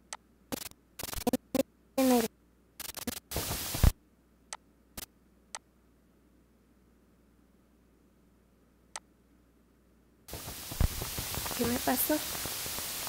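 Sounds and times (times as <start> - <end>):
sharp clicks: 0.0 - 1.6, 2.8 - 3.9
crackling static bursts: 0.5 - 4.0, 10.3 - 13.0
distorted voice-like sound: 1.2 - 2.3
low hiss: 1.6 - 13.0.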